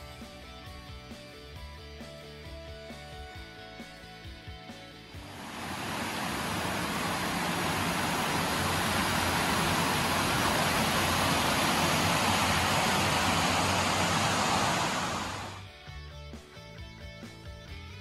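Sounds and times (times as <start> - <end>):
stream rushing over rocks: 5.2 - 15.6.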